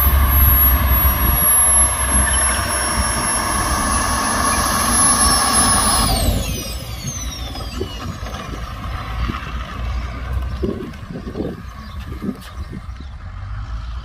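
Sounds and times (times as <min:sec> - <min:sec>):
jet turbine whine: 0:00.0 - 0:13.0.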